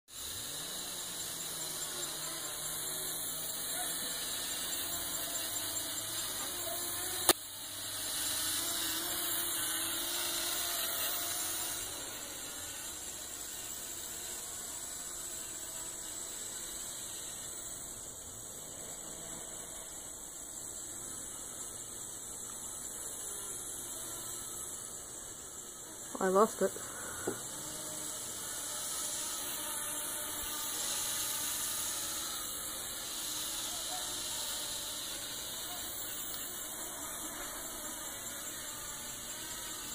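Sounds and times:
small drone propellers whining: 0.1 - 39.9.

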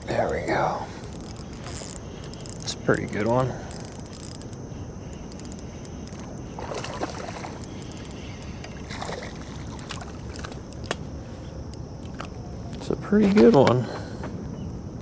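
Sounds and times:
steady low rumble: 0.0 - 15.0
fish splashing at water surface: 6.6 - 8.0, 8.7 - 10.6.

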